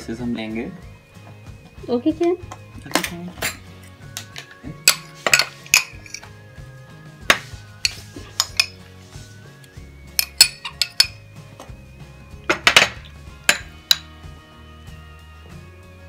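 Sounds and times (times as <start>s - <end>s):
soft background music: 0.0s - 16.0s
spoon clinking against dishes: 4.3s - 6.3s, 7.8s - 8.8s, 10.1s - 11.2s.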